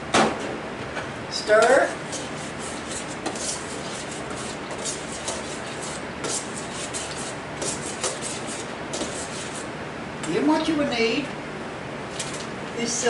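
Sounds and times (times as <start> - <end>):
steady background noise: 0.0 - 13.0
utensil scraping metal bowl: 1.4 - 9.7.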